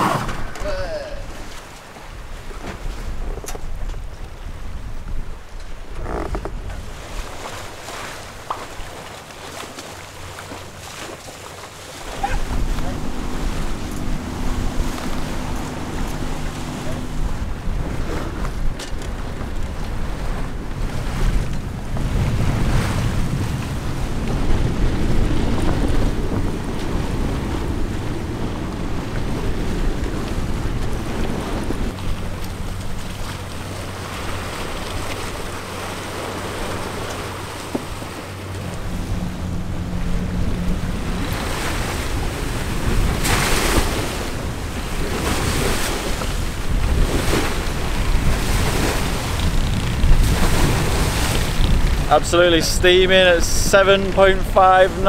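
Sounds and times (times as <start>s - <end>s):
choppy sea rushing past hull: 0.0s - 55.0s
wind: 0.0s - 55.0s
wind buffeting microphone: 12.0s - 55.0s.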